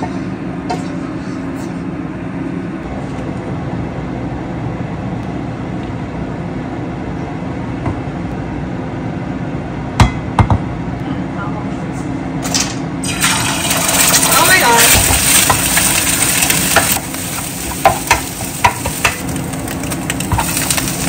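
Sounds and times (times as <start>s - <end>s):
frying pan clanking on cooktop: 17.7s - 19.3s.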